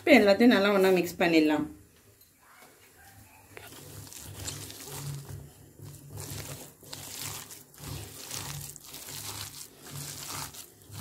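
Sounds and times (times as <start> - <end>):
hand squishing wet batter: 3.5 - 11.0.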